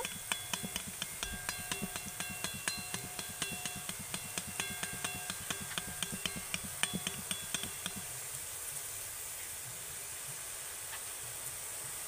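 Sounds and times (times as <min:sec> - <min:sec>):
ladle tapping metal pan: 0:00.0 - 0:08.2.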